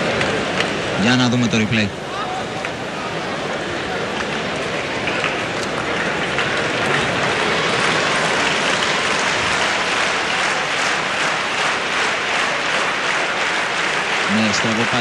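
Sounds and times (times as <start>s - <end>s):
crowd applauding: 3.4s - 15.0s.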